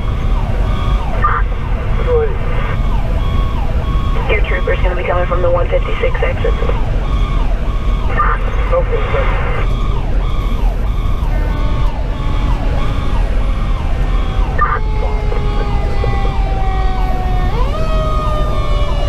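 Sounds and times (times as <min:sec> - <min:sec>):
diesel engine: 0:00.0 - 0:19.0
electronic siren sweeping: 0:00.0 - 0:19.0
road rumble: 0:00.0 - 0:19.0.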